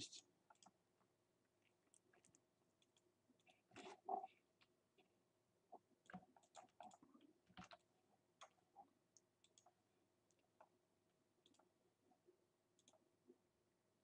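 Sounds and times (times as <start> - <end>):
computer mouse clicks: 6.0 - 8.6, 9.2 - 9.7, 11.4 - 11.7, 12.8 - 13.0.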